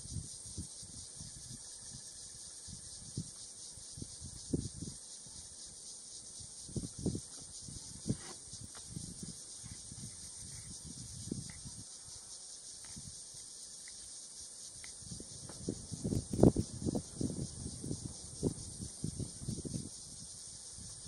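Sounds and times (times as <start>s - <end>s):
insects droning: 0.0s - 21.0s
low knocks and thumps: 15.3s - 17.0s.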